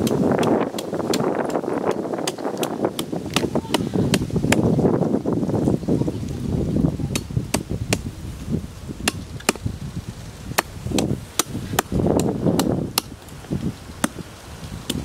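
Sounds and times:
blade chopping wood: 0.0s - 4.7s, 9.0s - 9.7s, 10.5s - 13.3s, 14.0s - 14.2s.

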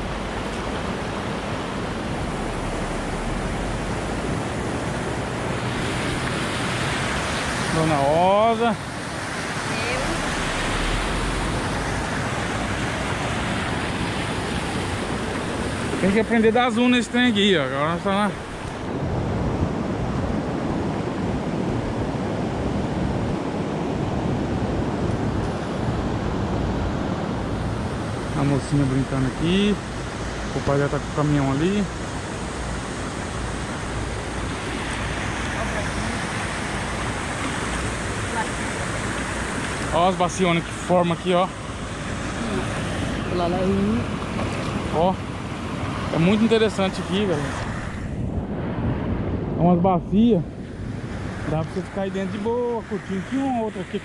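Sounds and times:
low rumble: 0.0s - 5.4s
river water over rapids: 0.0s - 54.0s.

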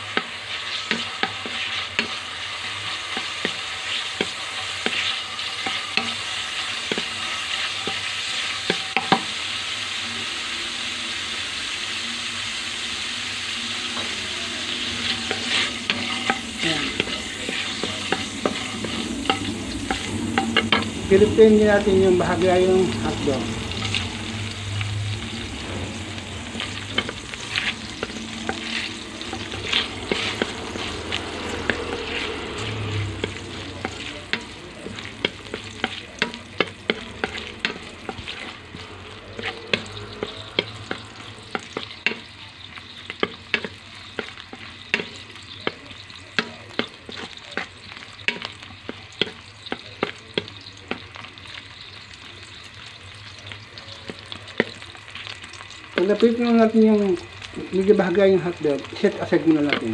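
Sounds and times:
food sizzling in hot oil: 0.0s - 59.9s
wooden spatula tapping and scraping pan: 0.1s - 2.3s, 3.0s - 6.2s, 26.5s - 51.3s, 58.8s - 59.9s.

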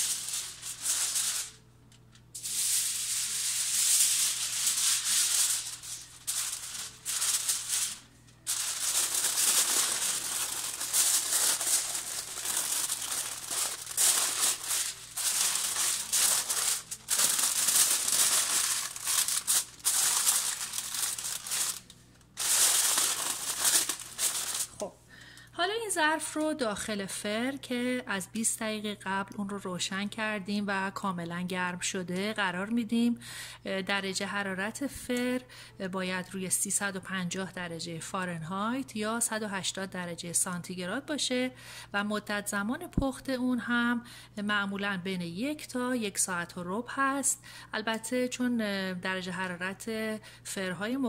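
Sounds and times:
aluminium foil crinkling: 0.0s - 25.4s.

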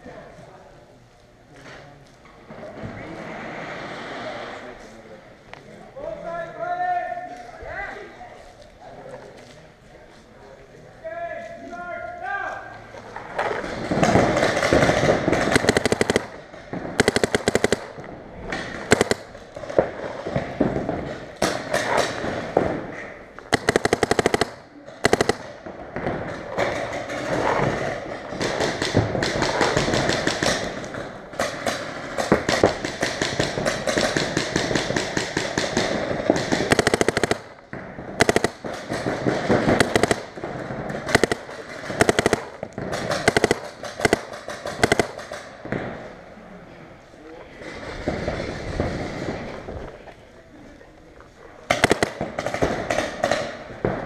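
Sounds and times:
paintball markers firing: 13.4s - 22.8s, 23.4s - 27.8s, 28.4s - 45.9s, 51.7s - 53.7s.

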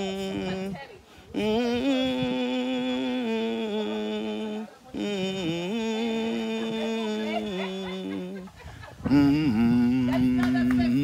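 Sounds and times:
person humming a slow tune: 0.0s - 11.0s.

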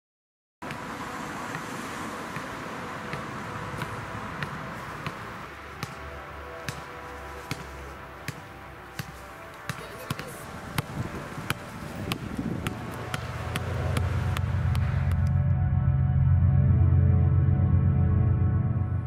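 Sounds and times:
steady outdoor hiss: 0.6s - 15.4s
basketball dribbled on tarmac: 10.8s - 14.9s.

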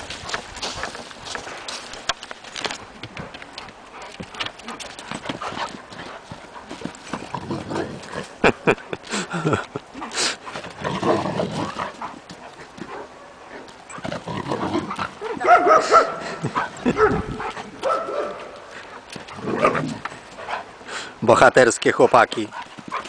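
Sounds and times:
dogs barking: 15.2s - 18.8s.

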